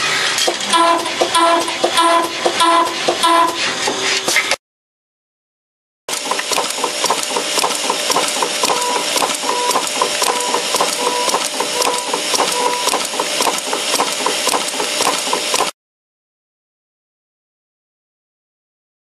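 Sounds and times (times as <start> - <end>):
stamping machine clattering: 0.3 - 4.6, 6.1 - 15.7
machine hum: 6.1 - 15.6.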